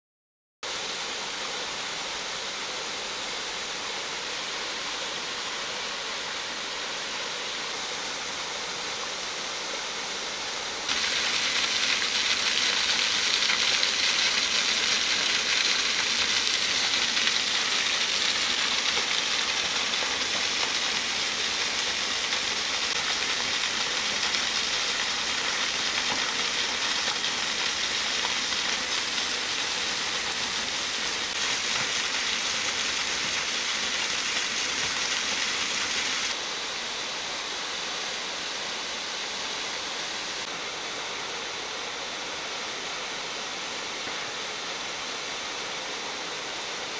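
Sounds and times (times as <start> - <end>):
waterfall rushing: 10.9 - 36.4.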